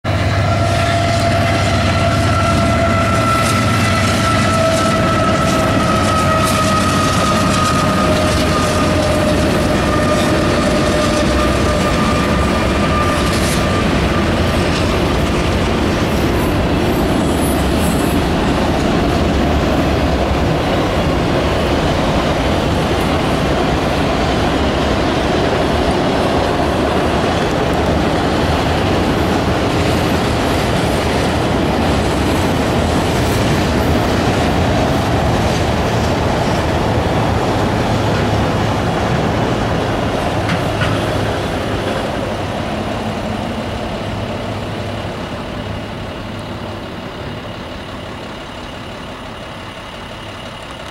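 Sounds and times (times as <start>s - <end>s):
freight train rumbling on rails: 0.0s - 50.9s.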